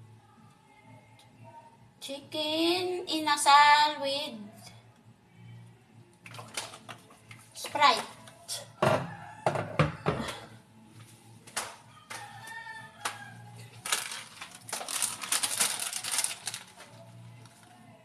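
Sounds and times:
plastic packet crinkling: 0:13.8 - 0:17.7.

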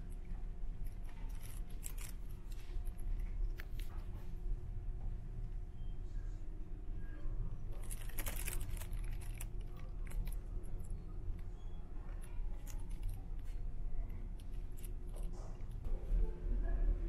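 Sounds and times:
light clicks and jingles: 0:00.0 - 0:04.3, 0:07.7 - 0:15.9.

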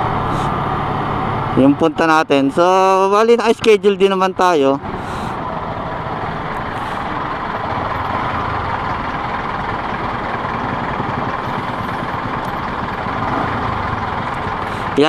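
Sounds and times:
motorcycle engine running: 0:04.8 - 0:15.0.

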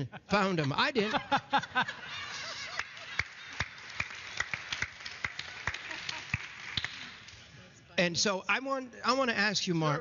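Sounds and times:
audience applauding: 0:02.1 - 0:07.4.

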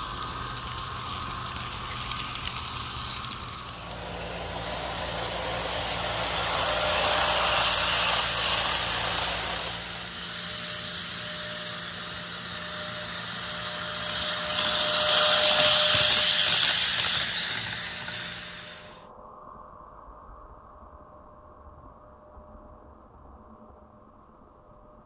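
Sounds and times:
model train wheels rolling: 0:00.0 - 0:19.0
faint steady whine: 0:00.0 - 0:25.0.

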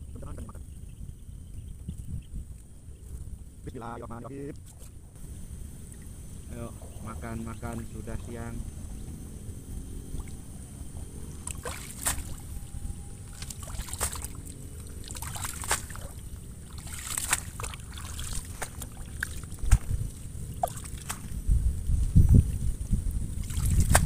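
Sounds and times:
steady low rumble: 0:00.0 - 0:24.0
sharp water splashes: 0:11.4 - 0:12.6, 0:13.2 - 0:21.4, 0:23.4 - 0:24.0
water sloshing and dripping: 0:11.4 - 0:12.6, 0:13.2 - 0:21.4, 0:22.3 - 0:24.0.

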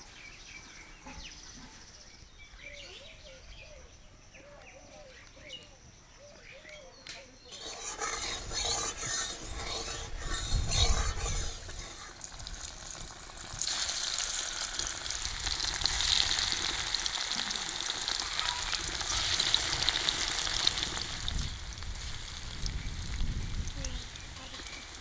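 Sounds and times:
paneer sizzling in hot oil: 0:07.5 - 0:25.0.

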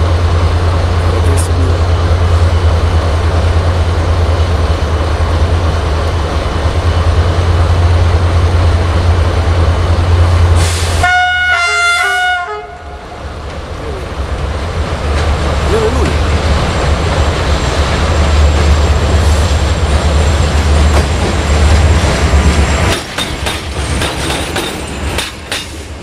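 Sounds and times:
locomotive low rumble: 0:00.0 - 0:23.2
locomotive horn blasts: 0:11.0 - 0:13.0.

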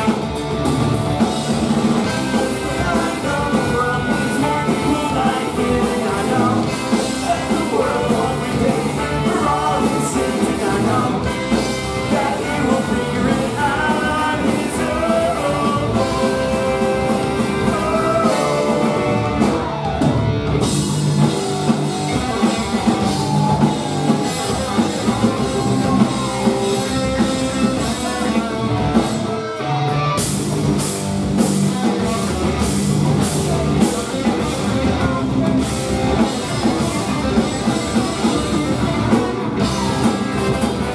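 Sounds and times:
live ska-punk band playing: 0:00.0 - 0:40.9
person singing: 0:02.0 - 0:20.0, 0:21.3 - 0:30.0.

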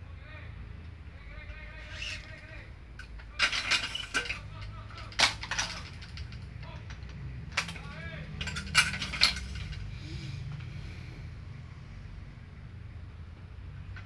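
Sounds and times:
string squeaking through frame: 0:01.6 - 0:02.6.

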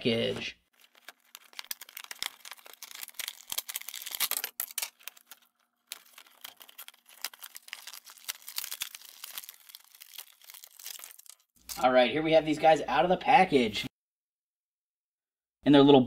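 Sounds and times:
plastic packaging crinkling: 0:00.7 - 0:11.8.

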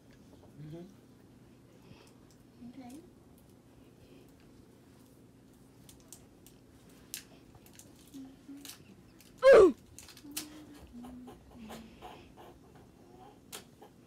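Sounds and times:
person squealing: 0:09.4 - 0:09.8.

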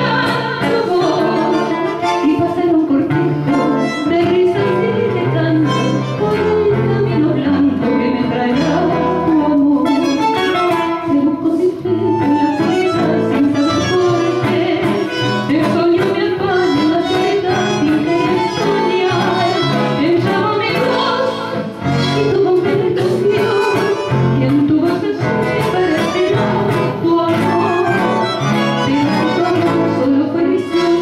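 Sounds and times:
instrumental music with steady beat: 0:00.0 - 0:31.0
woman singing into a microphone: 0:00.0 - 0:31.0.

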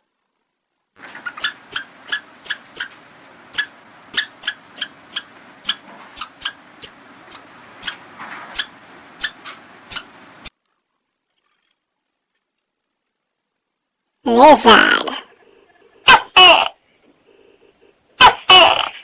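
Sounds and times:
squirrel chirping calls: 0:01.2 - 0:10.5.

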